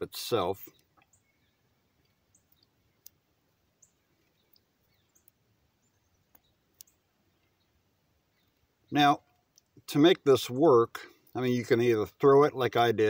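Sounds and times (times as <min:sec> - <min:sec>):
faint bird chirps: 0:00.3 - 0:09.8.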